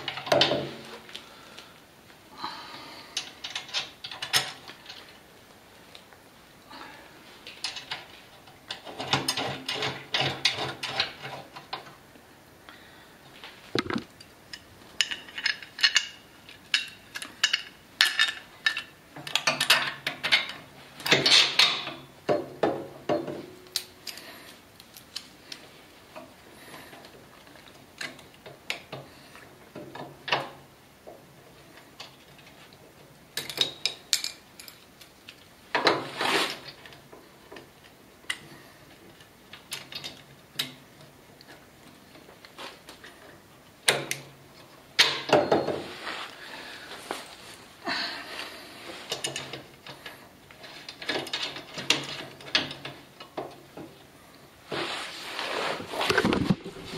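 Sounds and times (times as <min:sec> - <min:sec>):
metallic clicks and clatter: 0:49.1 - 0:54.0
rattling and scraping: 0:54.7 - 0:56.9.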